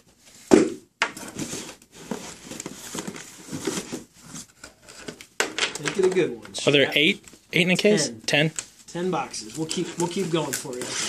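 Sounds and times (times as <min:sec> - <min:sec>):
plastic wrap crinkling: 0:09.3 - 0:11.0.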